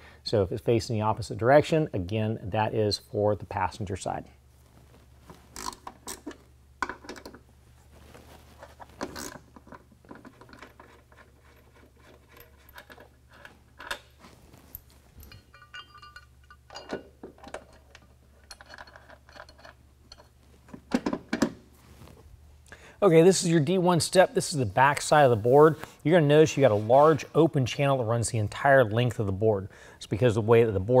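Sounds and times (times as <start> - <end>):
metal bolts clinking: 9.0 - 21.5.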